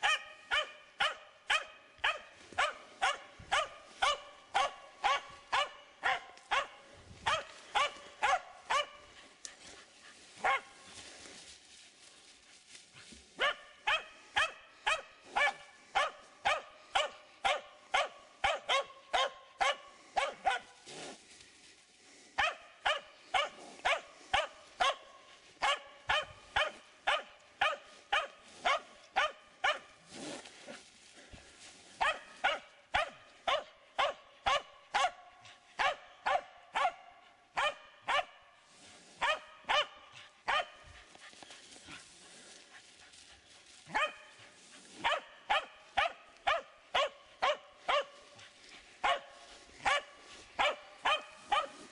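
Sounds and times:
dog barking: 0:00.0 - 0:09.2, 0:10.4 - 0:10.8, 0:13.4 - 0:20.8, 0:22.4 - 0:30.0, 0:32.0 - 0:38.6, 0:39.2 - 0:41.0, 0:43.9 - 0:51.9.

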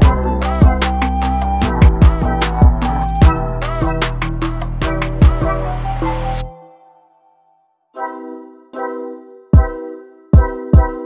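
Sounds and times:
sustained keyboard chords: 0:00.0 - 0:06.9.

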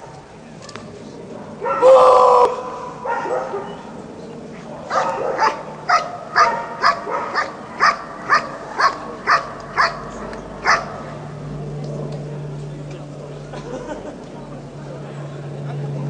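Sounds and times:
dog barking: 0:01.6 - 0:02.0, 0:03.0 - 0:03.8, 0:04.8 - 0:10.0, 0:10.6 - 0:11.1.

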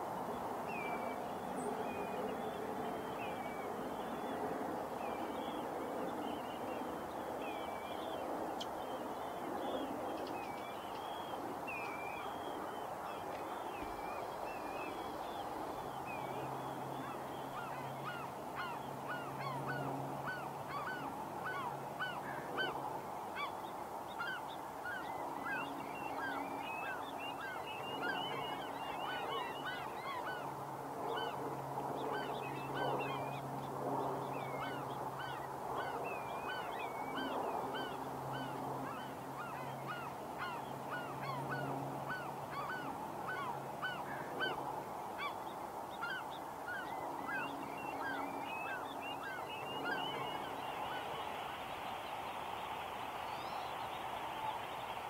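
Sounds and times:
flock of birds calling: 0:16.1 - 0:31.4, 0:34.4 - 0:51.5.

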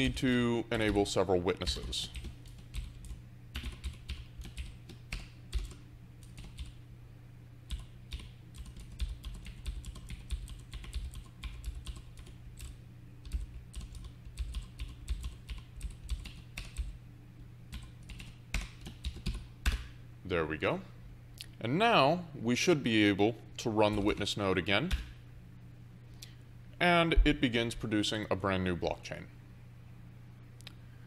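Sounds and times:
steady low hum: 0:00.0 - 0:31.0
typing on keyboard: 0:02.0 - 0:06.8, 0:07.7 - 0:17.0, 0:17.7 - 0:19.8.

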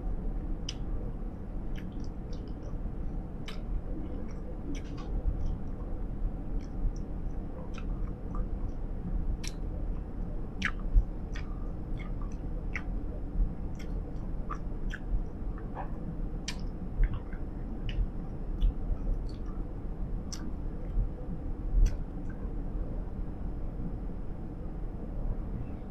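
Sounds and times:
vehicle low rumble: 0:00.0 - 0:25.9
gum chewing smacks: 0:01.7 - 0:02.8, 0:03.4 - 0:05.9, 0:07.7 - 0:08.5, 0:09.4 - 0:09.6, 0:10.6 - 0:13.0, 0:13.7 - 0:19.6.

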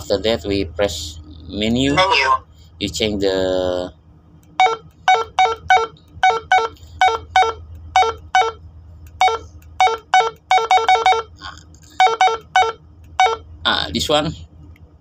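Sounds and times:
radio keypad beeps: 0:09.2 - 0:11.3.

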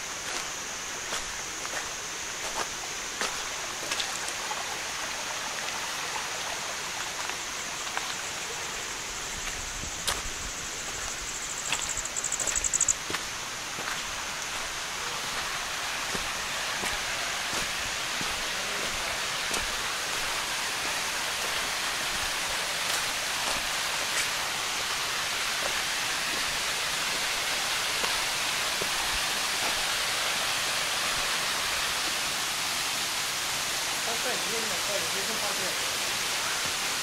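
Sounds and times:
faint footsteps on trail: 0:00.0 - 0:04.6, 0:07.2 - 0:30.0
waterfall rushing: 0:00.0 - 0:37.0.

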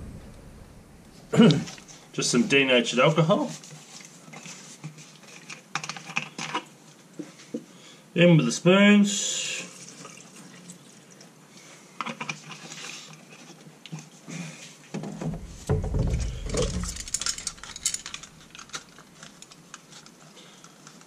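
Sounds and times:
dull low bump: 0:00.0 - 0:01.4, 0:15.3 - 0:18.3.

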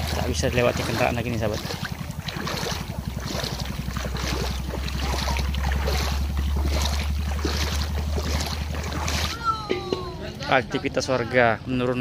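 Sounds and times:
water and wind hiss: 0:00.0 - 0:09.3
motor boat engine droning: 0:00.0 - 0:12.0.

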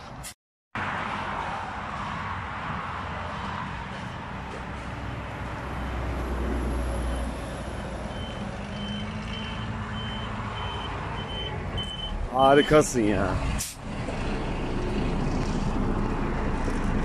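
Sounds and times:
reversing beeper: 0:08.1 - 0:12.9.

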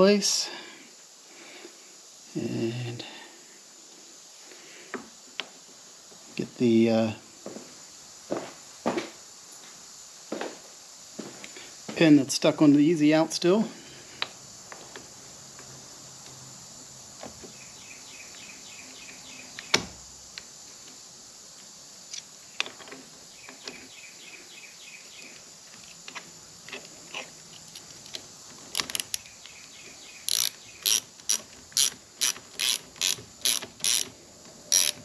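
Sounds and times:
hand ratchet clicking: 0:30.2 - 0:35.0.

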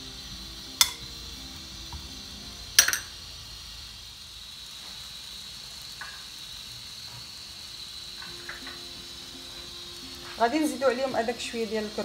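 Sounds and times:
butter sizzling in a pan: 0:00.0 - 0:12.0
spatula knocking pan: 0:00.8 - 0:01.0.

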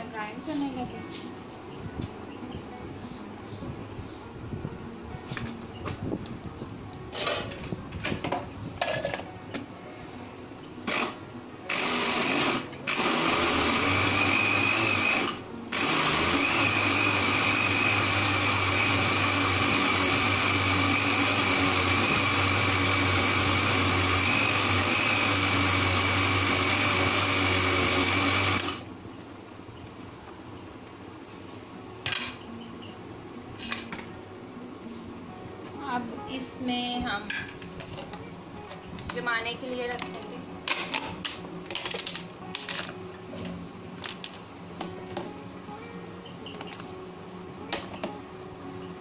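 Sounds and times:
blender grinding with a high whine: 0:10.9 - 0:28.8.

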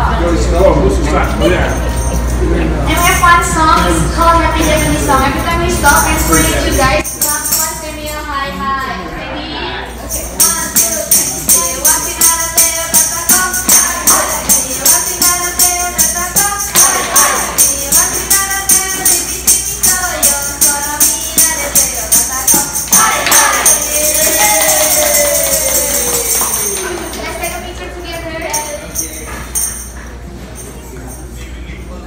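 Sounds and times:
jingle tambourines beating: 0:01.2 - 0:08.6, 0:10.0 - 0:31.6
staff singing a celebration song: 0:10.0 - 0:29.8
hands clapping: 0:16.7 - 0:17.6, 0:22.5 - 0:27.6.

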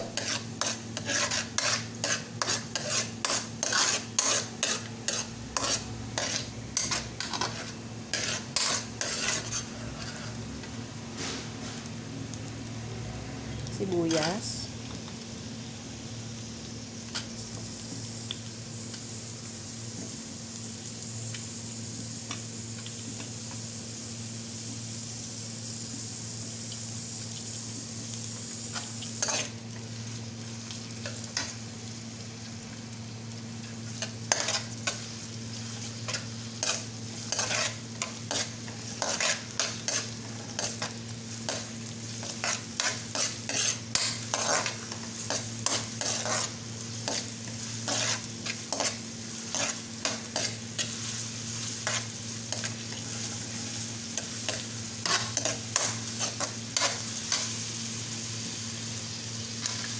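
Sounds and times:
metal spoon scraping a pan: 0:00.0 - 0:10.4, 0:28.7 - 0:29.6, 0:33.9 - 0:57.5
onions sizzling in a frying pan: 0:00.0 - 0:59.9.

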